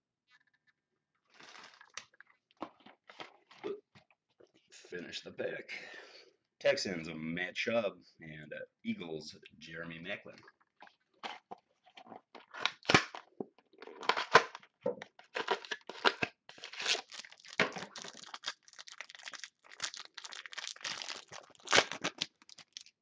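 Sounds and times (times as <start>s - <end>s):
plastic wrapper crinkling: 1.3s - 3.4s, 15.2s - 23.0s.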